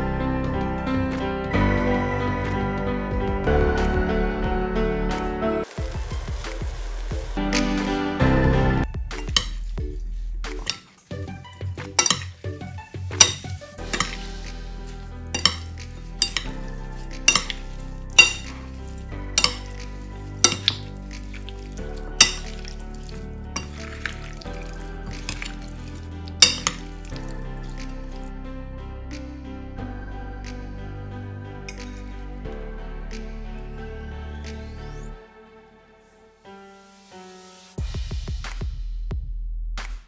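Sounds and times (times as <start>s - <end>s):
soft background music: 0.0s - 38.1s
spoons clinking against bowl: 9.2s - 9.7s, 10.6s - 12.4s, 13.2s - 27.9s
salad tossing squishy stirring: 9.2s - 12.4s, 13.2s - 28.2s.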